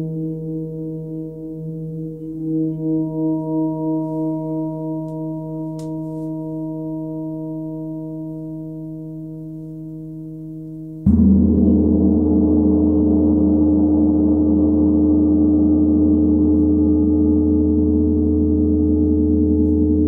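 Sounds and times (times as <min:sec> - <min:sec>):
gong struck with soft mallet: 0:11.0 - 0:20.0
steady tones: 0:11.1 - 0:20.0.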